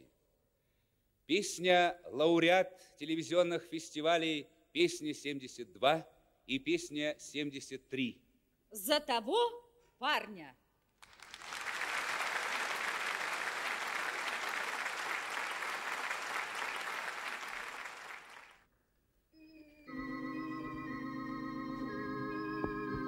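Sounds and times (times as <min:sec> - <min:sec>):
audience applauding: 0:11.0 - 0:18.6.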